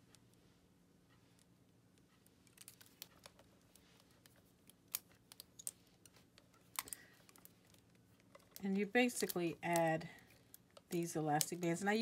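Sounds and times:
elastic bands clicking and snapping: 2.2 - 11.7.

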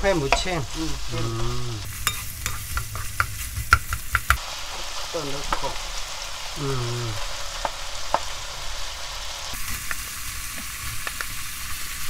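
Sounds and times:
squid sizzling in oil: 0.0 - 12.0
spatula knocking on pan: 2.1 - 4.4.

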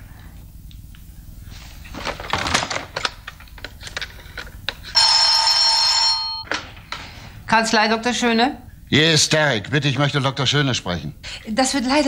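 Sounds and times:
telephone bell ringing: 4.9 - 6.5.

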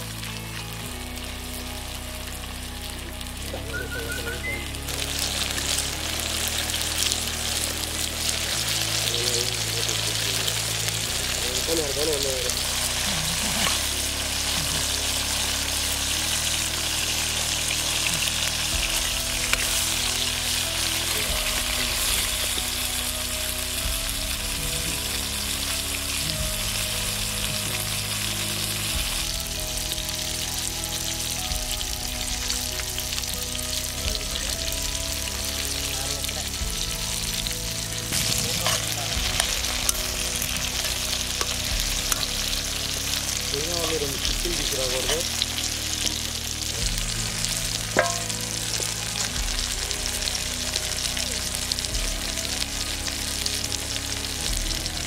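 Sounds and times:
vegetables sizzling in a pan: 0.0 - 55.0
ladle knocking against pan: 48.0 - 48.4.

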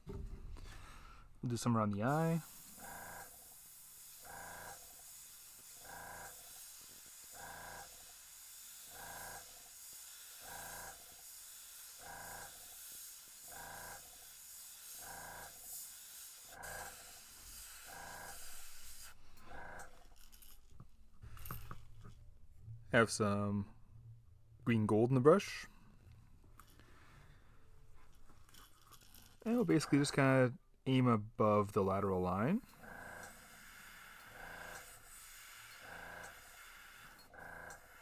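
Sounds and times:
airbrush hissing: 2.1 - 20.5, 32.8 - 38.0.

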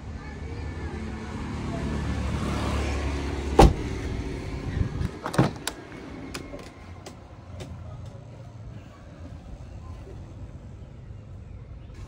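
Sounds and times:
car door slamming: 3.6 - 4.0.

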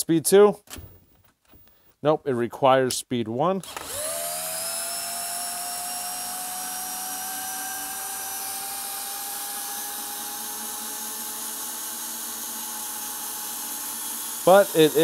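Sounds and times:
drill motor whine: 3.6 - 15.0.

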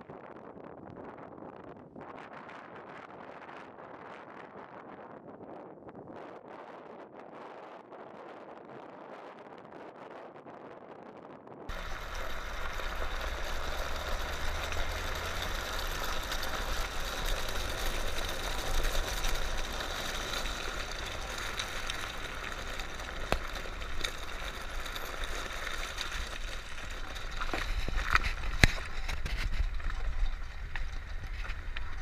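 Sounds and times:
tyre noise on gravel: 11.7 - 32.0
van engine drone: 11.7 - 32.0
stone clicks: 12.6 - 32.0.

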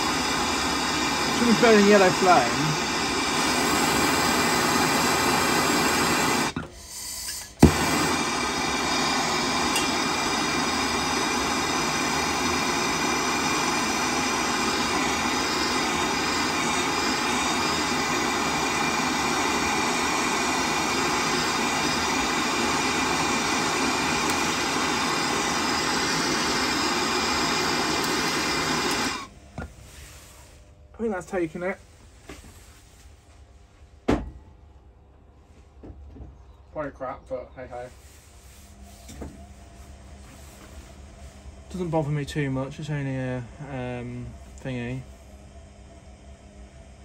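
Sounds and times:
blowtorch flame roaring: 0.0 - 29.7
blowtorch igniter click: 0.0 - 29.7.

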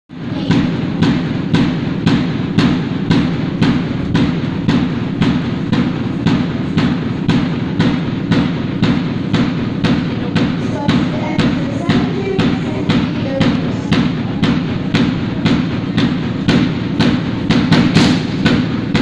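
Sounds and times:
drum beating marching cadence: 0.1 - 19.0.

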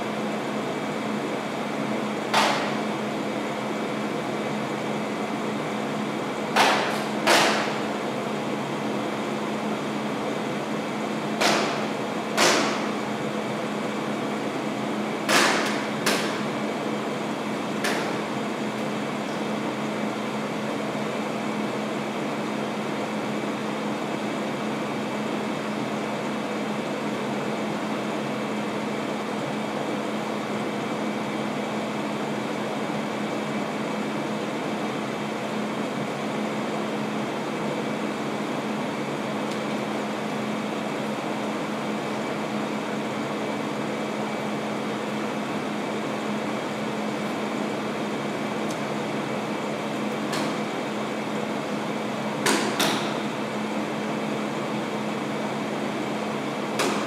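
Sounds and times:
air conditioning hiss and hum: 0.0 - 57.0.

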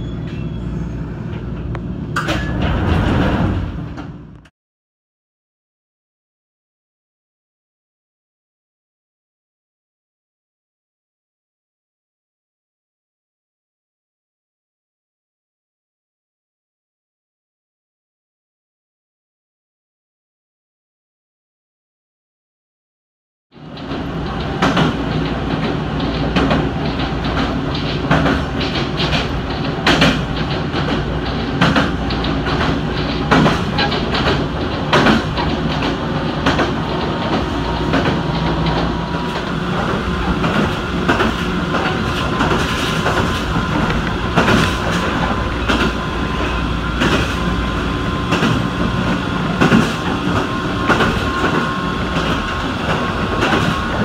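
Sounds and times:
train rumbling: 0.0 - 4.5, 23.6 - 54.0
wheel clacks over rail joints: 23.6 - 54.0.

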